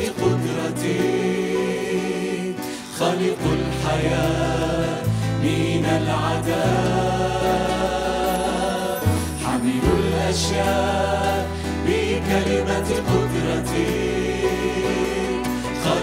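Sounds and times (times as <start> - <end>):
guitars: 0.0 - 16.0
mixed group singing a hymn: 0.0 - 16.0
bass guitar long notes: 3.4 - 16.0.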